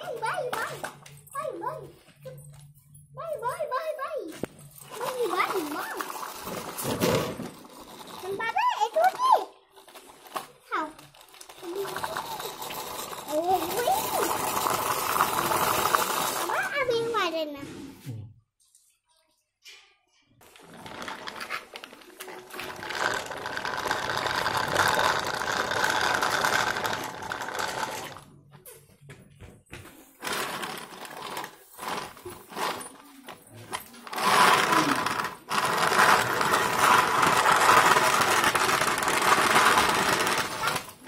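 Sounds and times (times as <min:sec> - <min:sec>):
toy vehicle motor whirring: 0:04.8 - 0:16.9, 0:20.5 - 0:28.2, 0:30.2 - 0:41.0.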